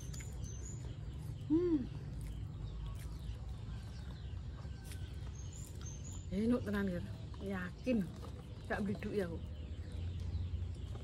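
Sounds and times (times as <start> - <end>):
faint bird chirps: 0.0 - 11.0
woman humming: 1.5 - 2.0.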